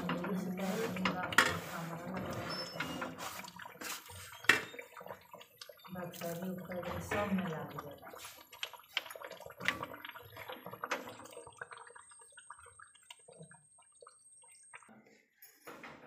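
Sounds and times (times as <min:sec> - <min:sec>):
curry bubbling in a pan: 0:00.0 - 0:14.9.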